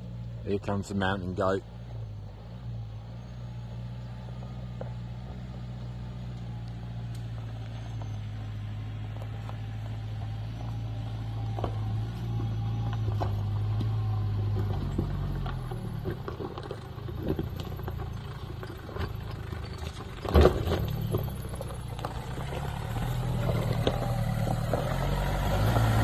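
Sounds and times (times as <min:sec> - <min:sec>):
vehicle engine at low revs: 0:00.0 - 0:26.0.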